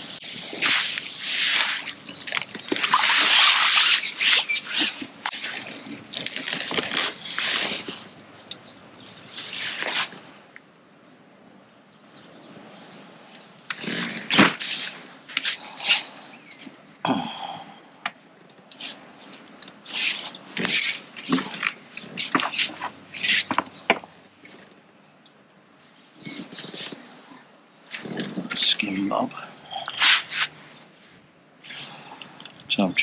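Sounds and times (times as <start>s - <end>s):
water splashing: 2.7s - 6.0s
small bird chirps: 7.5s - 9.4s, 11.8s - 13.6s.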